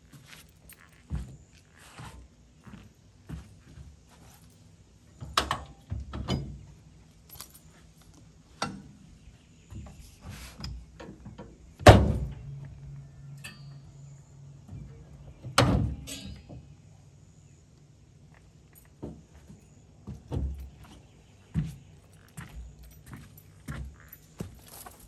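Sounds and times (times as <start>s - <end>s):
metal clanks and knocks: 5.2s - 6.7s, 15.5s - 16.7s
low metallic ring: 12.4s - 14.6s.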